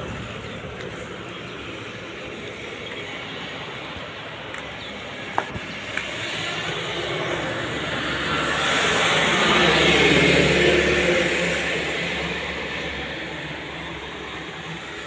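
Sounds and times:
steady traffic hum: 0:00.0 - 0:15.0
vehicle passing: 0:05.0 - 0:15.0.

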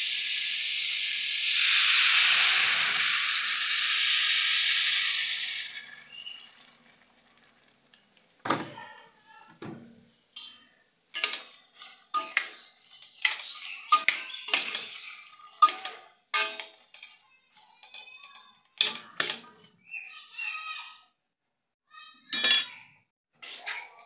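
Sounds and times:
water pouring into a pot: 0:00.0 - 0:08.5
metal ladle clinking in a pot: 0:10.4 - 0:19.5, 0:22.4 - 0:22.8.

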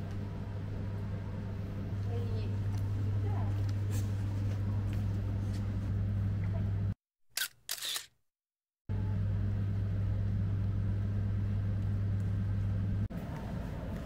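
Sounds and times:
low rumbling hum: 0:00.0 - 0:07.0, 0:08.9 - 0:14.0
even background noise: 0:13.0 - 0:14.0.

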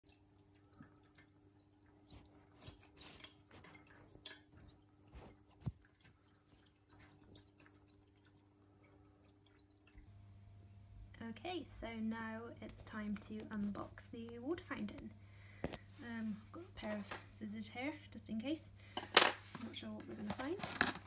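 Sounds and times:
kitten lapping water: 0:00.0 - 0:10.1
water trickling into steel bowl: 0:00.0 - 0:10.1
low pump hum: 0:00.0 - 0:19.0.

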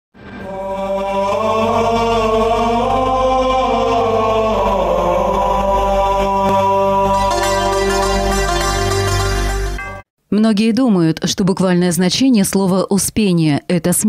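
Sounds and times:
choir chanting: 0:00.4 - 0:09.2.

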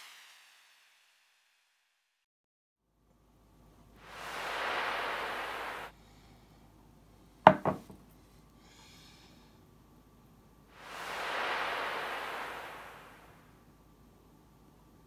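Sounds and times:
soft hiss: 0:03.5 - 0:15.0
plate knocking on wooden table: 0:07.5 - 0:08.0.

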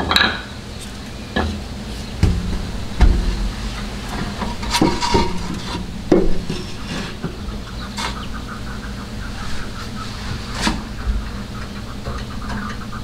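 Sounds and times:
sharp metal knocks: 0:02.2 - 0:07.7.

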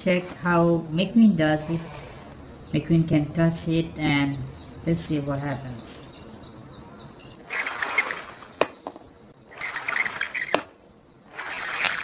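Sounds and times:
toy car rattling down plastic ramp: 0:07.5 - 0:12.0.

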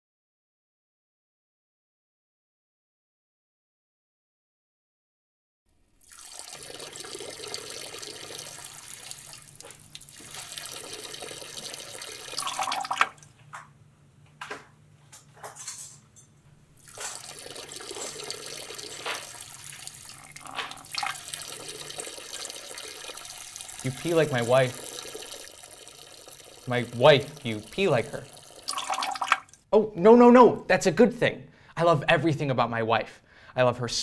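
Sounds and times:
urine splashing into urinal: 0:06.0 - 0:13.3, 0:16.8 - 0:29.6.

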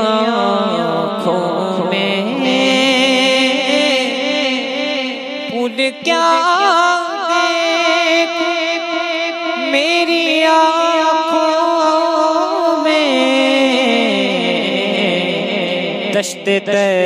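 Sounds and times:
man singing long wavering notes: 0:00.0 - 0:17.0.

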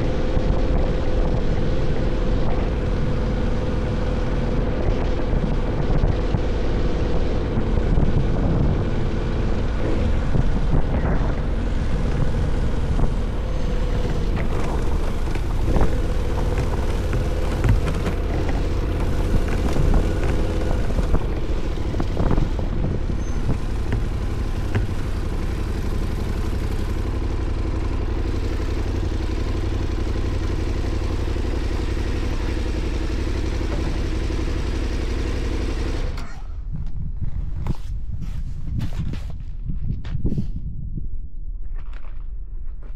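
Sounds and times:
tires rolling over gravel: 0:00.0 - 0:36.2
motorcycle engine idling: 0:07.4 - 0:36.2.

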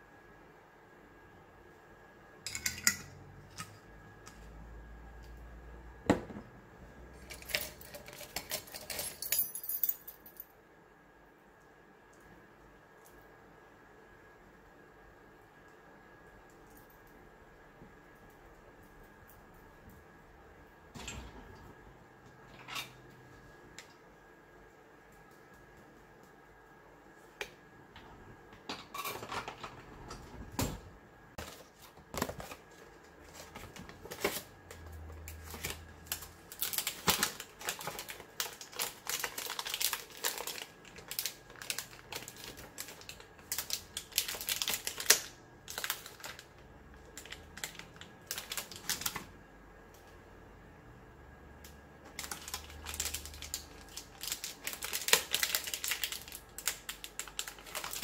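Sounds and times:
plastic packet crinkling: 0:35.3 - 0:49.3, 0:52.1 - 0:58.0.

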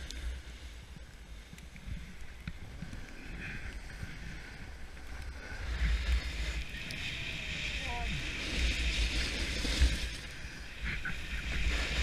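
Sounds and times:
snowboard scraping over snow: 0:00.0 - 0:12.0.

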